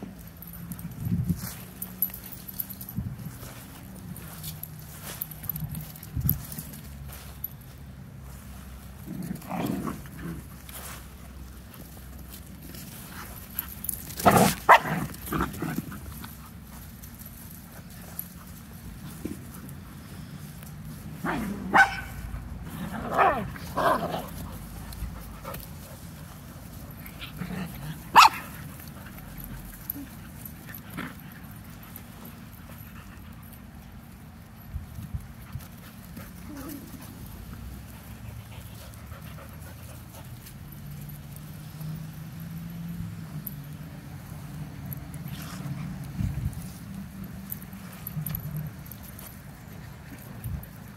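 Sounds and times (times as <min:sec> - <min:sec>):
puppies barking: 0:21.3 - 0:22.3, 0:28.1 - 0:28.7.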